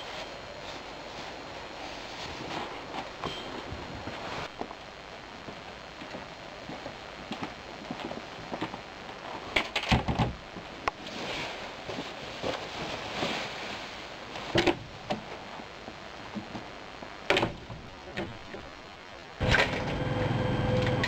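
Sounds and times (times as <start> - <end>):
clothing rustle: 0.0 - 4.6, 11.0 - 15.7.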